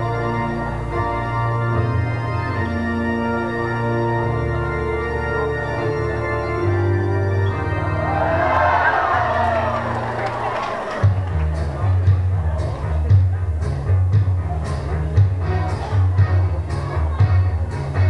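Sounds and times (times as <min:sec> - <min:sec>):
organ-like chords with bass: 0:00.0 - 0:18.0
audience voices: 0:07.4 - 0:18.0.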